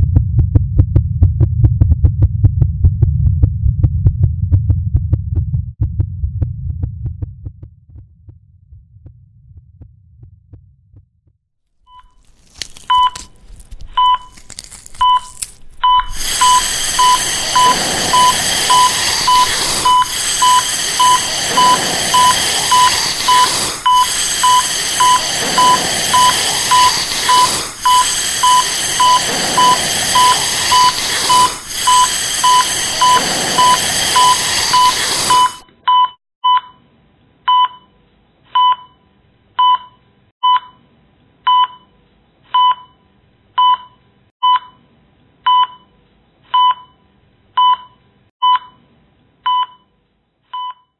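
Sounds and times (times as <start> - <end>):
electronic beeps: 15.0 - 36.7
loud hiss: 16.1 - 35.6.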